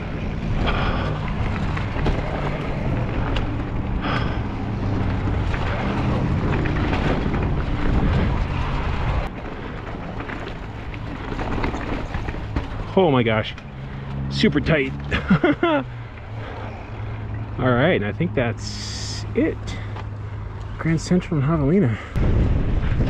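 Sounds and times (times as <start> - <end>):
wind rushing over microphone: 0.0 - 11.7, 22.1 - 23.0
tyres rolling over rock: 0.0 - 13.5
bike rattling clicks: 0.0 - 14.2.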